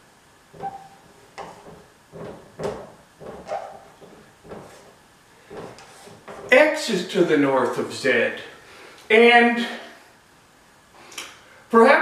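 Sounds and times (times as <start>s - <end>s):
marker squeaking on whiteboard: 0.5s - 4.9s, 5.5s - 6.5s.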